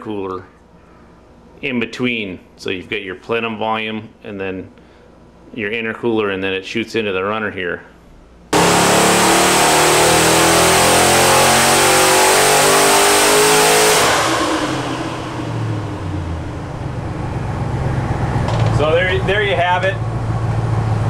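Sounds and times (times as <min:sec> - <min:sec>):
engine revving at full throttle: 0:08.6 - 0:21.0.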